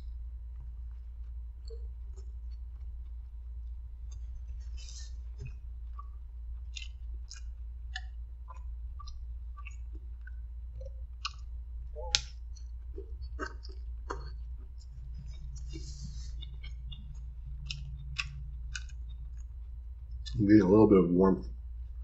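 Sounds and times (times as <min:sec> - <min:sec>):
low hum: 0:00.0 - 0:22.0
chewing with mouth smacks: 0:00.9 - 0:20.4.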